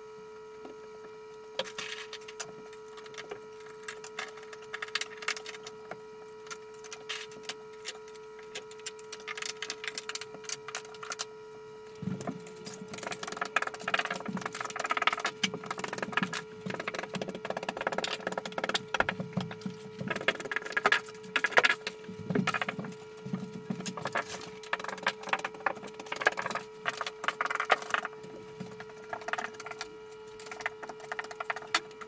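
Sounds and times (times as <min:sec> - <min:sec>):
steady hum: 0:00.0 - 0:32.0.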